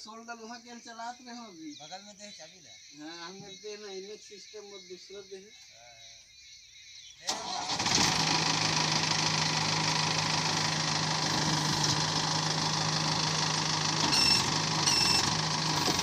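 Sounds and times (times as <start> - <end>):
diesel engine idling: 7.3 - 16.0.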